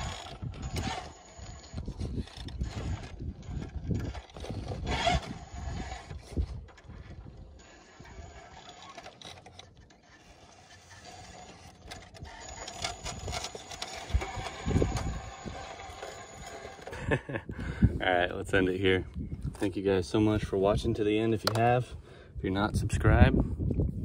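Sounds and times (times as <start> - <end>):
tyres scraping on rock: 0.0 - 17.1
toy car motor whining: 0.0 - 17.2.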